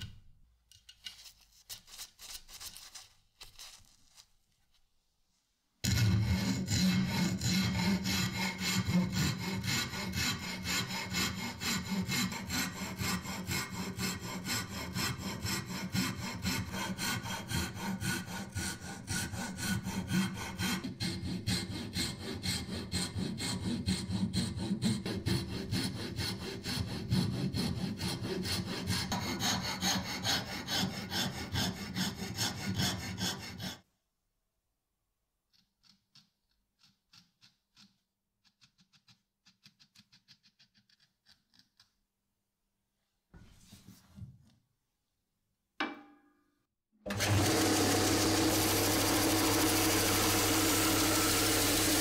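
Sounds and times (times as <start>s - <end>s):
file rasping across wood: 5.8s - 33.9s, 47.1s - 52.0s.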